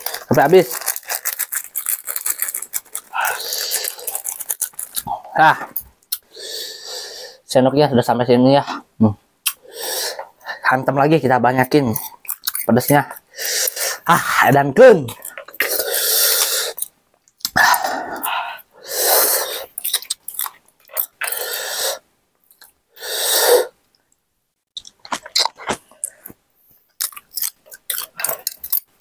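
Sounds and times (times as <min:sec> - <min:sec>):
chewing: 0:00.0 - 0:05.1, 0:19.6 - 0:21.4, 0:24.8 - 0:29.0.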